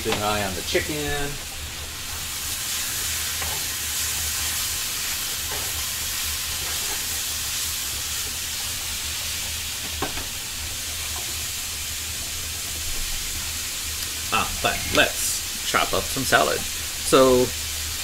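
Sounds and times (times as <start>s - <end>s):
chicken sizzling in frying pan: 0.0s - 18.0s.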